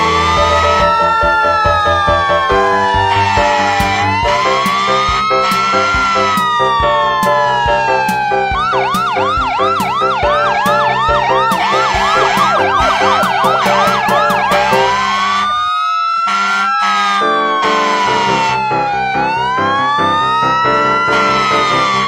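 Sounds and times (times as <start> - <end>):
music with steady beat: 0.0 - 15.0
fast yelping siren: 0.0 - 22.0
slow wailing siren: 0.0 - 22.0.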